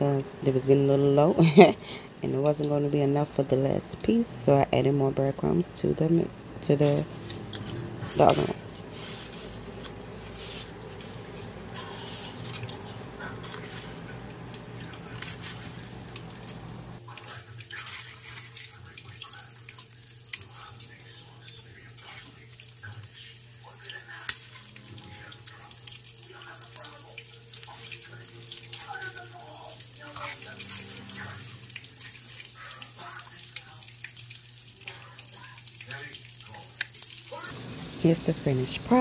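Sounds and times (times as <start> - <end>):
steady low hum: 0.0 - 17.0
breadcrumbs crackling and rustling: 5.4 - 39.0
foil pan crinkling: 6.1 - 37.6.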